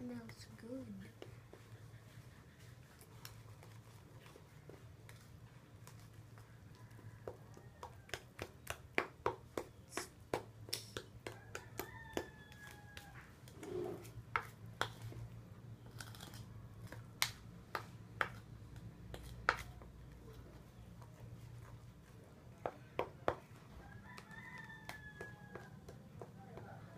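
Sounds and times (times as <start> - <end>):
spoon scraping plastic bowl: 13.5 - 15.1.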